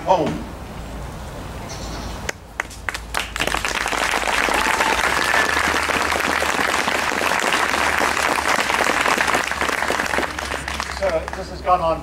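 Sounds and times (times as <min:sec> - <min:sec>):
audience applauding: 0:02.6 - 0:11.7.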